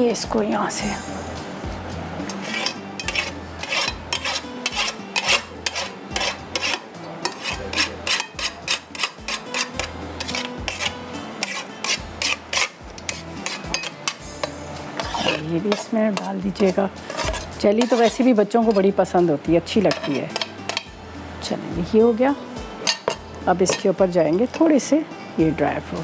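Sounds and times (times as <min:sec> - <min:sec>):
knife scraping metal tray: 0:02.2 - 0:18.9, 0:19.8 - 0:20.9, 0:22.8 - 0:24.7.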